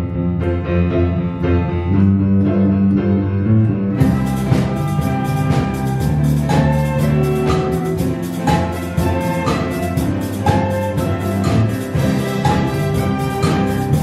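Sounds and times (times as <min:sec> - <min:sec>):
keyboards: 0:00.0 - 0:14.0
guitars: 0:00.9 - 0:14.0
violins: 0:03.9 - 0:14.0
drum beat: 0:04.0 - 0:14.0
flute: 0:04.0 - 0:14.0
saxophones: 0:04.0 - 0:14.0.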